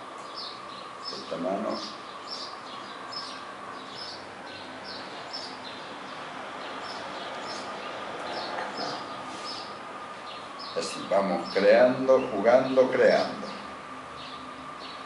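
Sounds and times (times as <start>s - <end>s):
small bird chirping: 0.2s - 10.8s.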